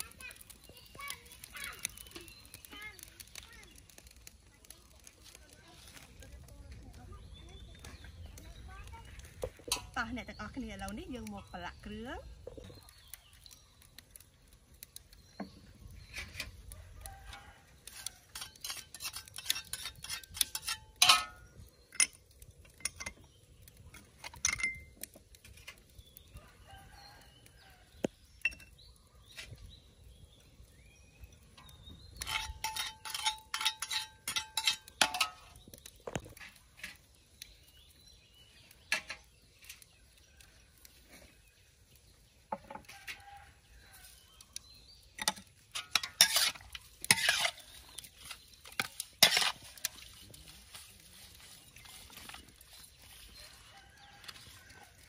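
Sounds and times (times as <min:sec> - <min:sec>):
metal utensils clinking on wok: 0:09.6 - 0:10.0, 0:17.9 - 0:23.2, 0:23.9 - 0:25.8, 0:31.6 - 0:35.6, 0:45.2 - 0:50.8.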